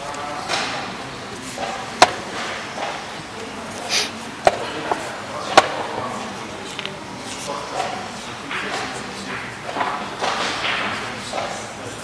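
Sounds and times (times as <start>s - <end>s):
chess pieces knocking on board: 2.0s - 2.4s, 4.5s - 6.0s.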